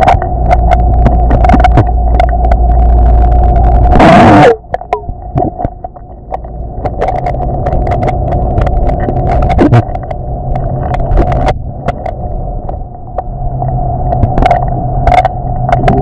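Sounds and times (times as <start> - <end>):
low rumble: 0.0 - 16.0
small clicks and pops: 0.0 - 16.0
underwater hum: 0.0 - 16.0.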